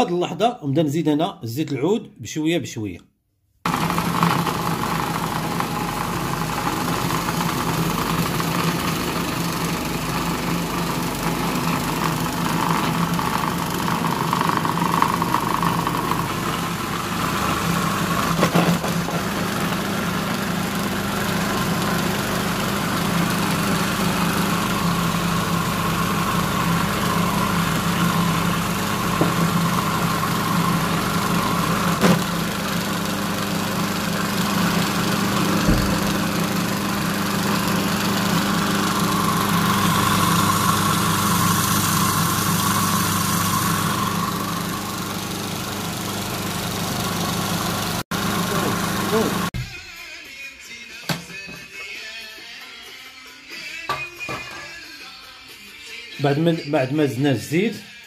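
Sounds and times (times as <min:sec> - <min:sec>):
food processor motor running: 0:03.7 - 0:49.6
knock: 0:35.6 - 0:36.0.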